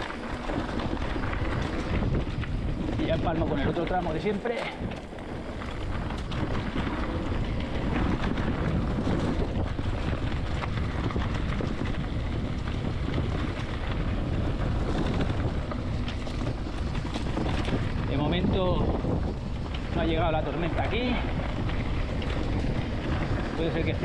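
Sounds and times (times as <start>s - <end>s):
bike rattling over rough ground: 0.0s - 24.0s
wind buffeting microphone: 0.0s - 24.0s.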